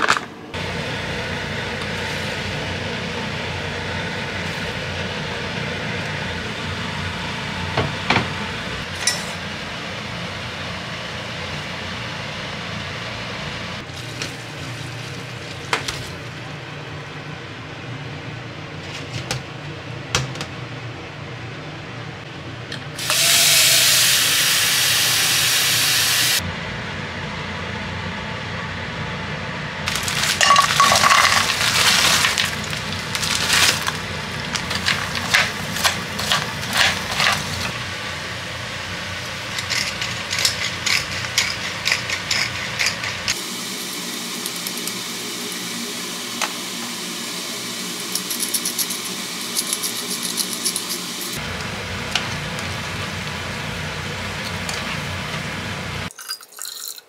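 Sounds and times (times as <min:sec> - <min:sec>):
pepper mill grinding: 0:29.9 - 0:37.8, 0:39.2 - 0:43.4, 0:48.0 - 0:51.4
tongs scraping frying pan: 0:34.4 - 0:37.8, 0:39.4 - 0:43.4.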